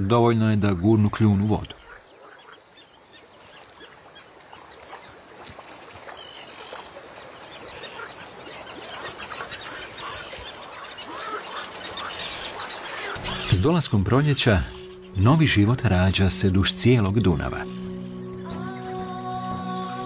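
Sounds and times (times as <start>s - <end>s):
chorus of short animal calls: 7.7s - 13.5s.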